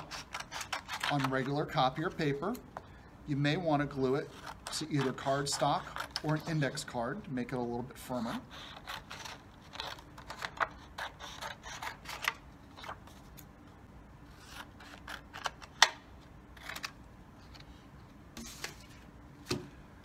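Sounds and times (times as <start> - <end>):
scissors snipping paper: 0.0 - 1.6, 4.3 - 6.4.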